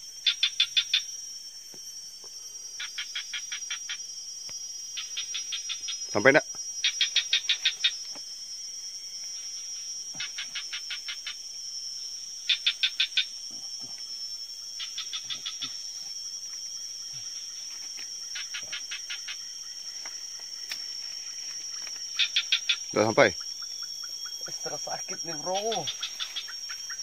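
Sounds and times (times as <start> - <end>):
high-pitched insect drone: 0.0 - 27.0
rapid chirping: 4.9 - 8.2, 14.2 - 27.0.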